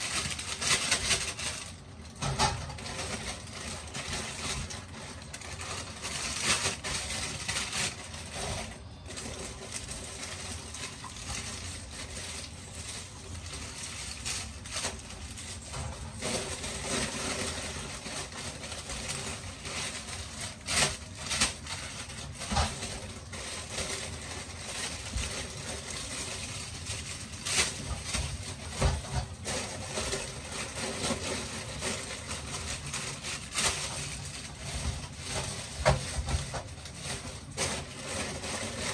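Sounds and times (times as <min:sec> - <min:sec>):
plastic crinkling: 0:00.0 - 0:38.9
knocks and clatters against sink: 0:28.7 - 0:29.4.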